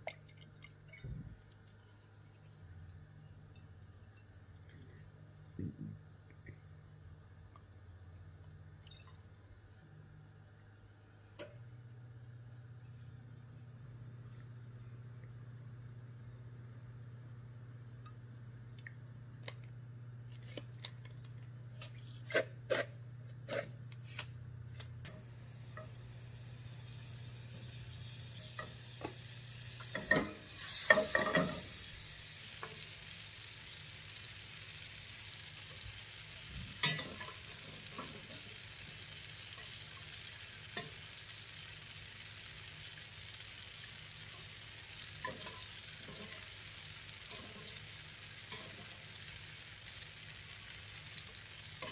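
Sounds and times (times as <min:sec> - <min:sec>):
butter sizzling in a frying pan: 0:25.2 - 0:51.9
pan clattering on stove: 0:29.9 - 0:31.7, 0:36.8 - 0:38.4, 0:45.2 - 0:46.6, 0:48.5 - 0:49.1.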